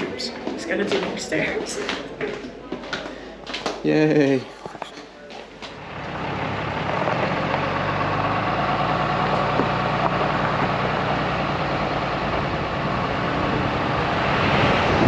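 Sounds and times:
road noise: 0.0s - 2.4s, 5.6s - 15.0s
truck engine: 5.8s - 15.0s.

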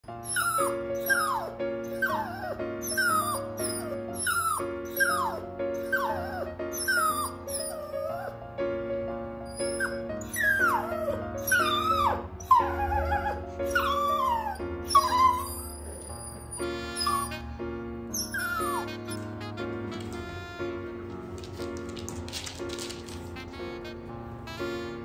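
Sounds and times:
background music: 0.0s - 25.0s
dog whining: 0.2s - 8.4s, 9.5s - 17.4s, 18.1s - 19.4s.

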